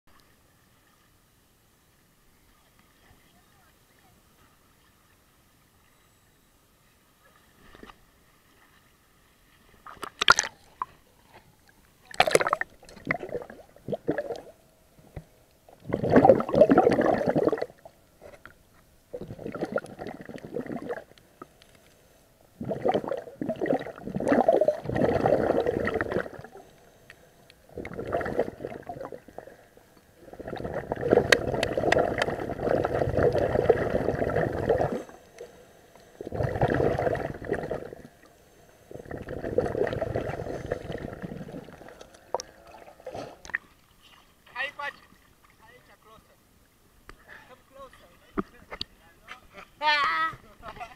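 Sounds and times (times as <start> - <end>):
underwater regulator bubbles: 10.0 - 10.9, 12.1 - 17.9, 19.1 - 21.2, 22.6 - 26.6, 27.6 - 35.5, 36.2 - 38.3, 38.9 - 43.7
splash: 12.1 - 14.5.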